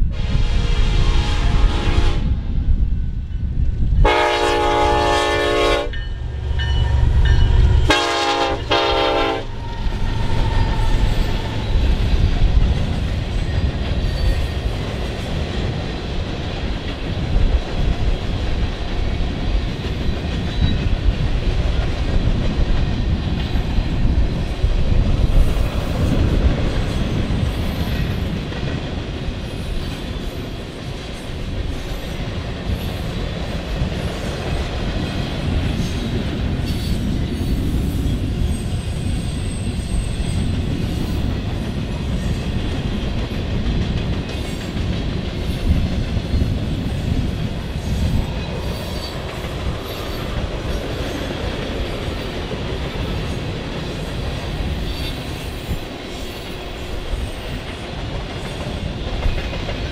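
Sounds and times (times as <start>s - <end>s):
train rumbling by: 0.0s - 59.9s
train horn blasts: 0.1s - 2.4s, 4.0s - 11.6s
wheels clattering on rails: 9.4s - 59.9s.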